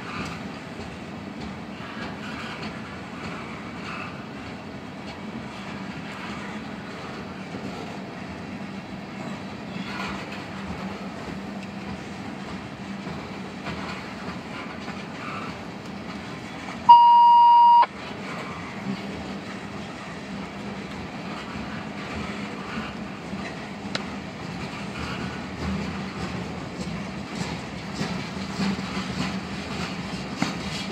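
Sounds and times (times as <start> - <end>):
train wheels clattering on rails: 0.0 - 16.9, 17.9 - 30.9
loud steady beep: 16.9 - 17.9.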